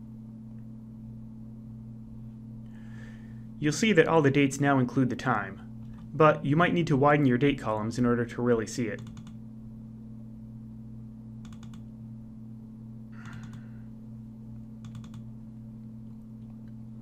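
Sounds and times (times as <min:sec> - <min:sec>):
steady low hum: 0:00.0 - 0:17.0
computer mouse clicking: 0:09.0 - 0:09.4, 0:11.4 - 0:11.9, 0:13.2 - 0:13.7, 0:14.8 - 0:15.3.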